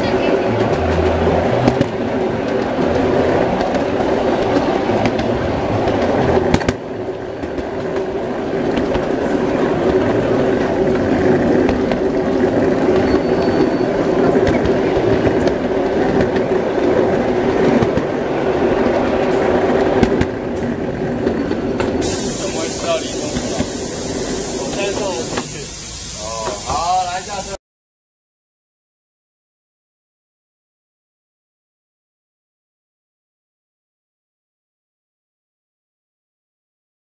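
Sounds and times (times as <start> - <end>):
constant hum: 0.0 - 13.1
train wheels clattering on rails: 0.0 - 27.5.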